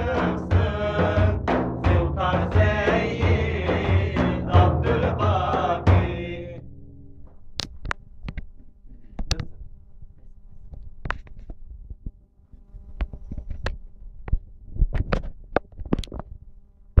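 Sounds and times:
irregular knocks and bumps: 0.0s - 8.4s.

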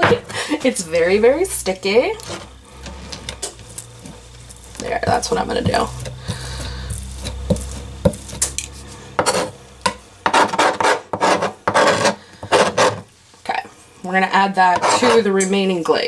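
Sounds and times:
knife scraping cutting board: 2.2s - 9.6s, 10.2s - 13.1s, 14.7s - 15.3s.

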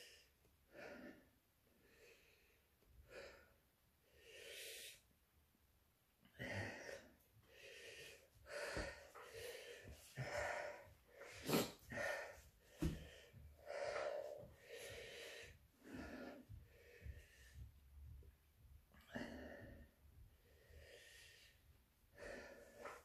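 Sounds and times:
man gasping breaths: 6.4s - 17.8s.

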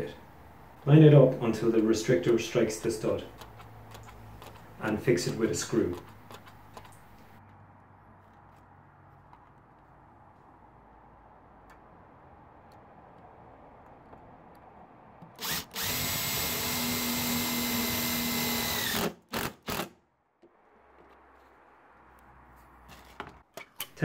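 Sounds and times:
cordless drill driving screw: 2.2s - 7.4s, 15.4s - 19.9s.

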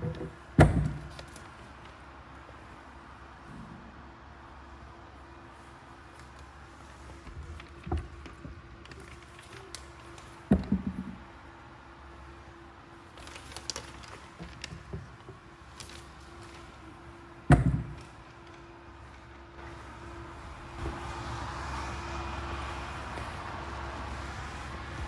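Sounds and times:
dull thumps and knocks: 10.5s - 11.3s, 17.5s - 18.0s.

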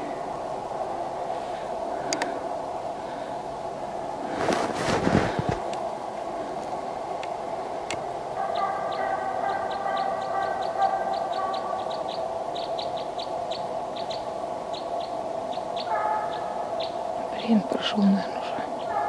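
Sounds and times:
faint steady hum: 0.0s - 19.0s
small bird chirping: 9.7s - 18.2s.

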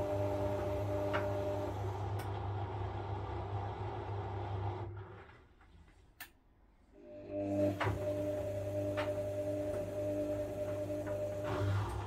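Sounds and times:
washing machine motor hum: 0.0s - 5.8s, 6.9s - 12.0s.

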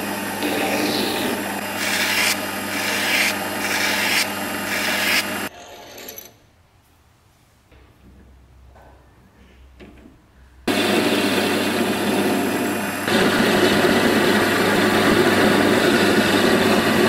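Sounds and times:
metal lathe humming: 0.0s - 6.1s, 10.7s - 17.0s
file scraping spinning metal: 0.0s - 6.2s.

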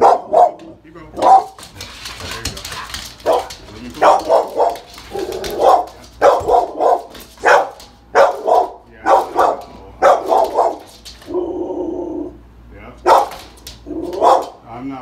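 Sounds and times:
dog barking: 0.0s - 1.6s, 3.2s - 11.8s, 13.0s - 14.6s.

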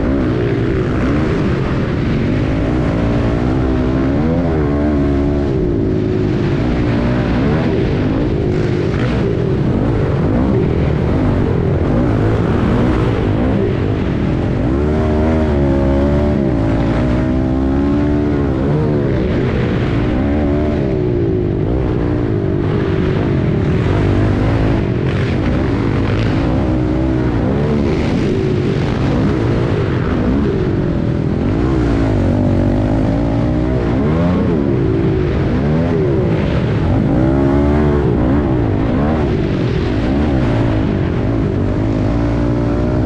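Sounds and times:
dirt bike engine revving: 0.0s - 43.0s.

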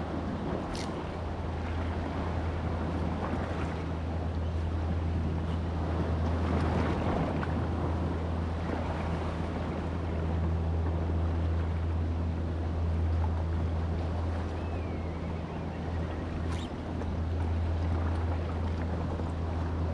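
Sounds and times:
steady low hum: 0.0s - 19.9s
wind: 0.0s - 19.9s
short gliding chirp: 14.5s - 16.9s.

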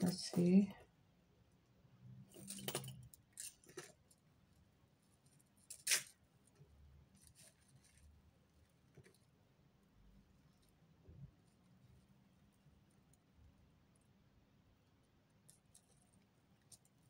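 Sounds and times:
metal chain clinking: 2.3s - 4.0s.

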